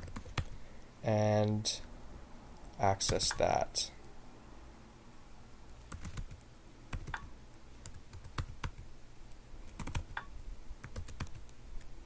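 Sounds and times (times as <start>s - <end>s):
keyboard typing: 0.0s - 0.6s, 5.8s - 8.9s, 9.7s - 11.6s.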